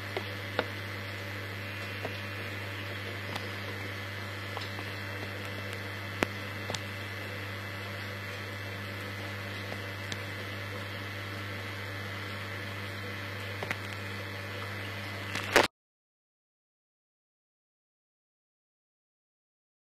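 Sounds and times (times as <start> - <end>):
low electrical hum: 0.0 - 15.7.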